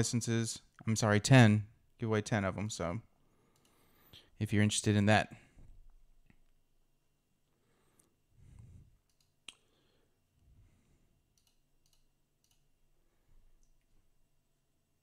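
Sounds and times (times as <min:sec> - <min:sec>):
computer mouse clicks: 0:03.5 - 0:03.8, 0:09.0 - 0:09.7, 0:11.3 - 0:12.7.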